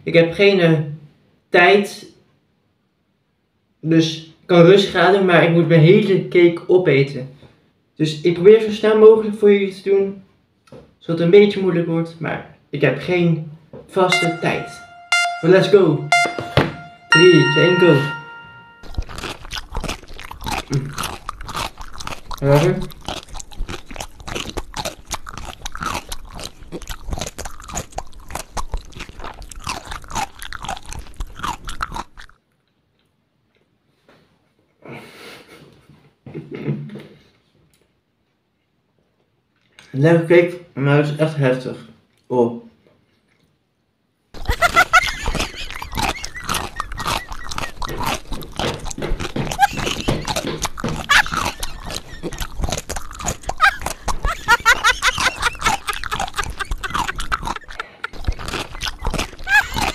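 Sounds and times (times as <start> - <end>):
mouth clicks and crunches: 18.9 - 32.7, 44.4 - 59.9
person chewing cake: 18.9 - 33.8, 42.1 - 43.7, 44.4 - 59.9.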